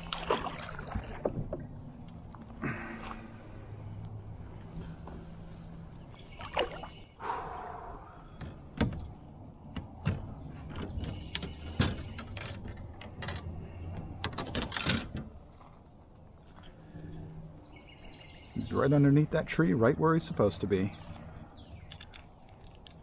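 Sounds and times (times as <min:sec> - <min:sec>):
fish splashing in water: 0:00.0 - 0:01.3.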